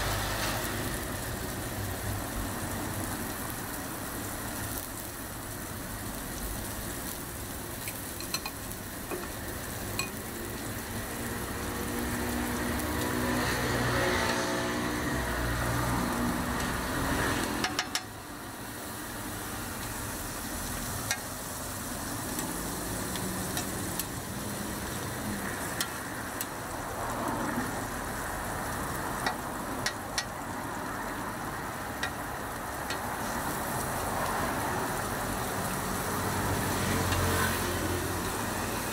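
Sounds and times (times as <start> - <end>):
patties sizzling in oil: 0.0 - 38.9
metal spatula clicking on griddle: 7.8 - 9.4, 17.5 - 18.2, 21.0 - 21.3, 29.2 - 30.3, 32.0 - 32.2.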